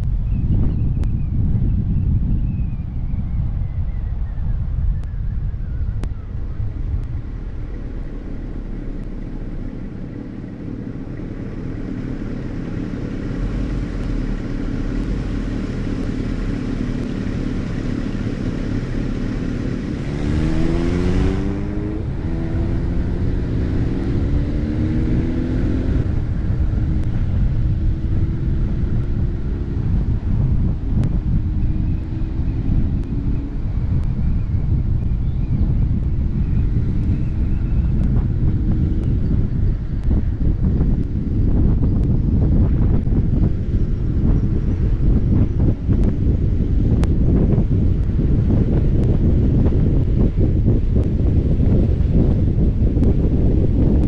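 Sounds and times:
road and wind noise: 0:00.0 - 0:54.0
engine revving up: 0:12.5 - 0:26.6.

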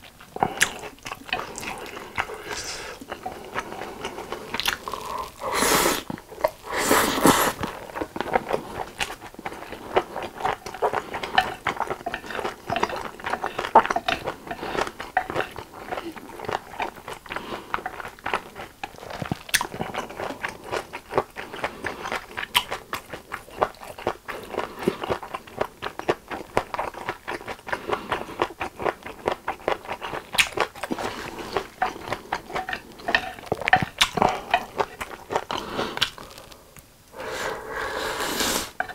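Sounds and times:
wet chewing: 0:00.0 - 0:38.9
slurping noodles: 0:00.4 - 0:07.8, 0:35.4 - 0:38.8.

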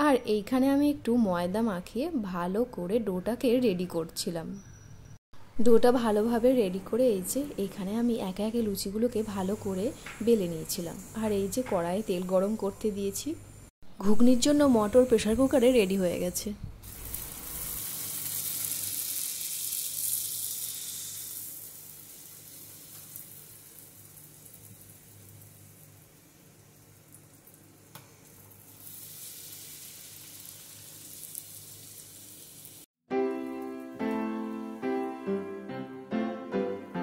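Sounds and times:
dough sizzling in hot oil: 0:08.7 - 0:12.9, 0:16.8 - 0:32.9
piano music: 0:33.1 - 0:37.0.

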